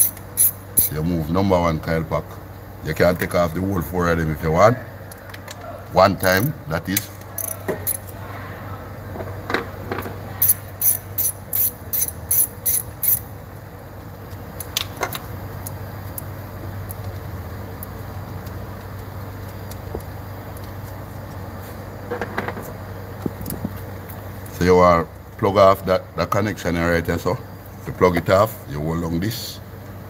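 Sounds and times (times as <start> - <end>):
hand ratchet clicking: 0.0 - 1.0, 7.0 - 8.1, 10.4 - 13.3
steady low hum: 0.0 - 30.0.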